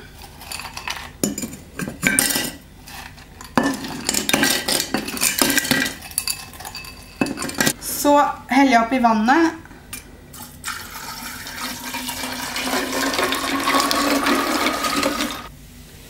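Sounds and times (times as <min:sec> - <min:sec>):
ice cubes clinking against glass: 0:03.4 - 0:07.7.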